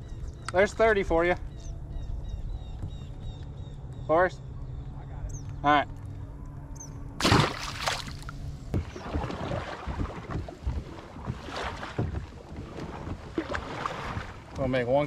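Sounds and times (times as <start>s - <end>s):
gear knocking on hull: 8.6s - 14.8s.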